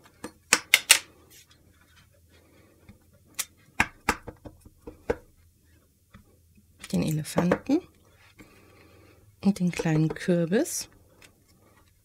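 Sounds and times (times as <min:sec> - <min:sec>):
rubber stamp tapping on ink pad: 0:03.8 - 0:05.3.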